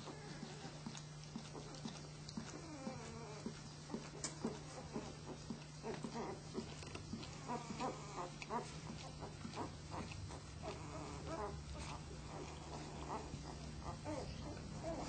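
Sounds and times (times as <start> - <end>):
puppies squeaking and grunting: 0.0 - 15.0
steady low hum: 0.0 - 15.0.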